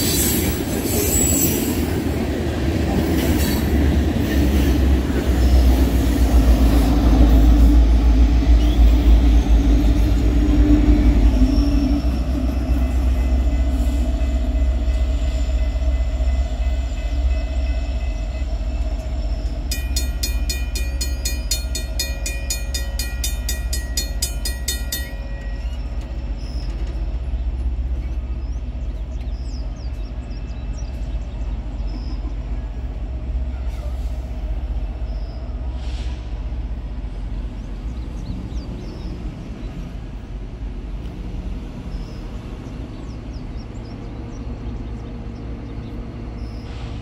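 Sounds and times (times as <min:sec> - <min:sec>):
train rumbling past: 0:00.0 - 0:47.0
rapid pulsed ringing: 0:12.0 - 0:26.6.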